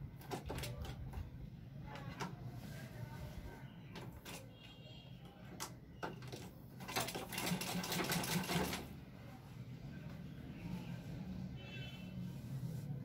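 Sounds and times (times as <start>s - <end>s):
sewing machine clicks: 5.6s - 8.9s
sewing machine stitching rapidly: 6.2s - 8.9s.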